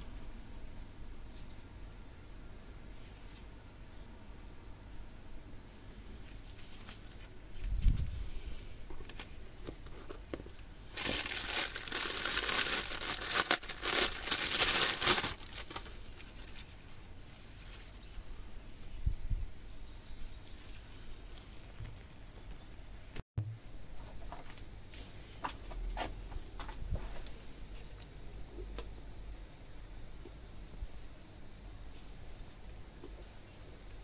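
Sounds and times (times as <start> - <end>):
plastic bag crinkling: 10.9 - 17.9.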